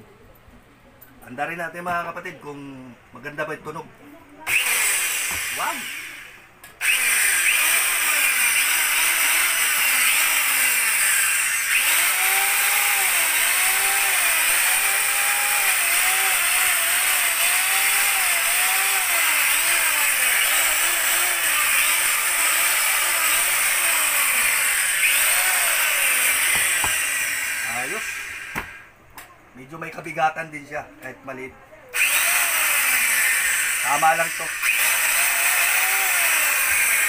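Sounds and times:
circular saw motor whining: 4.5 - 28.9, 32.0 - 37.0.

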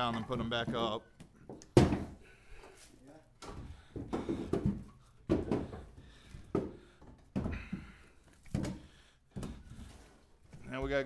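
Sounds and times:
firewood logs knocking: 3.4 - 9.9.

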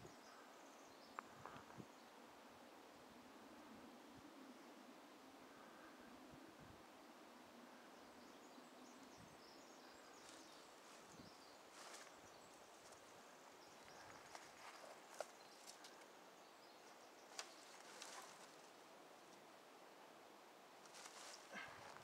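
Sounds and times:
footsteps through dead twigs: 11.7 - 13.1, 13.8 - 16.0, 17.3 - 18.7, 20.8 - 22.0.

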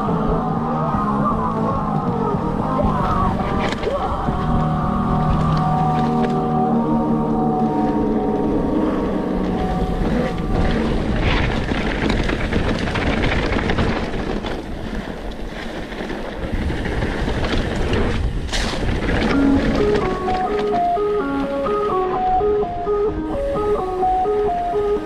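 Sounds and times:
mountain bike rumbling and rattling: 0.0 - 22.7
wind buffeting microphone: 0.0 - 25.0
bike knocking over bumps: 10.1 - 21.1.

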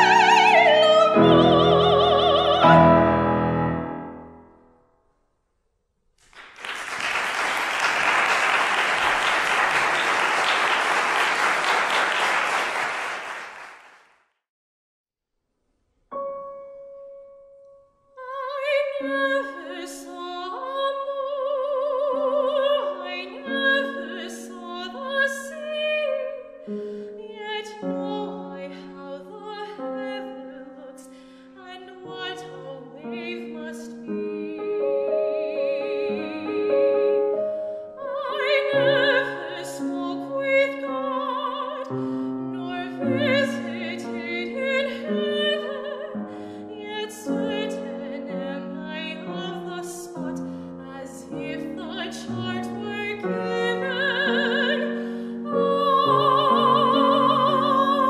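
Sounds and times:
woman singing with vibrato: 0.0 - 3.2, 18.2 - 26.6, 27.2 - 37.3, 38.0 - 58.0
grand piano: 0.0 - 5.0, 16.1 - 58.0
audience applause: 6.3 - 14.0.

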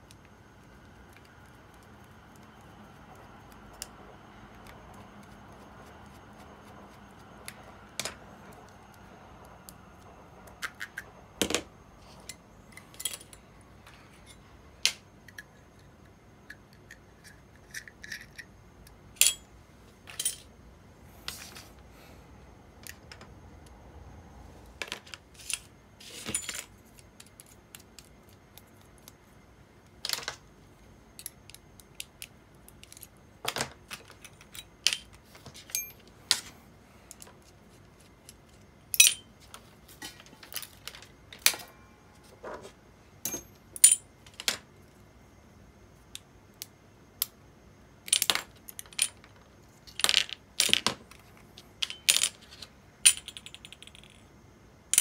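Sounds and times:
small metal parts clinking: 12.2 - 13.4, 19.2 - 20.5, 38.9 - 39.3, 43.2 - 44.6, 48.1 - 54.3.

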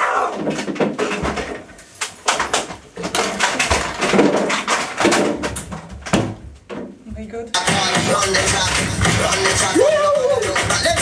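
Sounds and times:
man crying out and grunting: 9.6 - 10.6.

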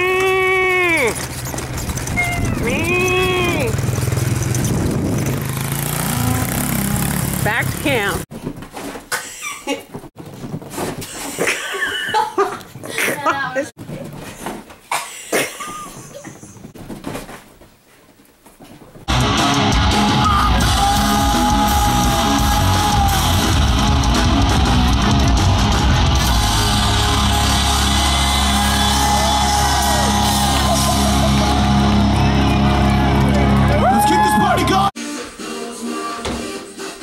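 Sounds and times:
distorted electric guitars: 19.1 - 34.9
singer yelling: 20.0 - 23.6, 26.3 - 32.4.

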